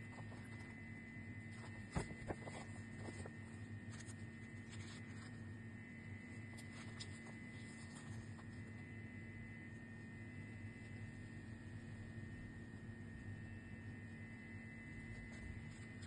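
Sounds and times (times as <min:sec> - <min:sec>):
paper rustling: 0:00.0 - 0:00.8, 0:01.4 - 0:05.6, 0:06.2 - 0:08.8, 0:15.1 - 0:16.0
steady hum: 0:00.0 - 0:16.0.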